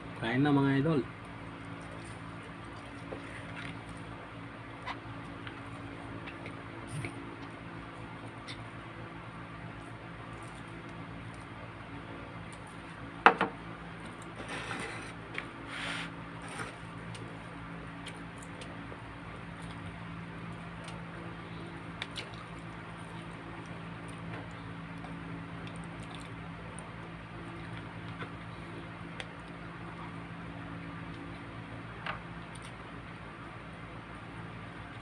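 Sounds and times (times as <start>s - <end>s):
steady low hum: 0.0s - 35.0s
chicken squishing and tearing: 16.8s - 31.6s.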